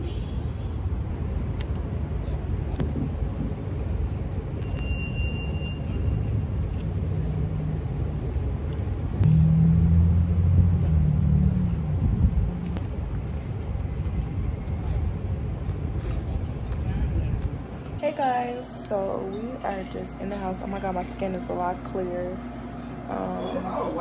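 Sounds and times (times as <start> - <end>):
traffic rumble: 0.0 - 24.0
vehicle engine running: 9.1 - 16.6.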